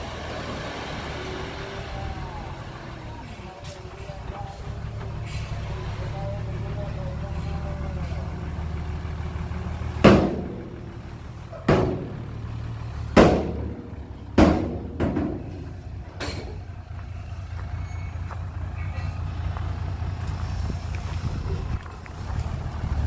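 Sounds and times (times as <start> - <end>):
diesel engine running: 0.0 - 23.0
truck bed clanging bangs: 9.9 - 16.8.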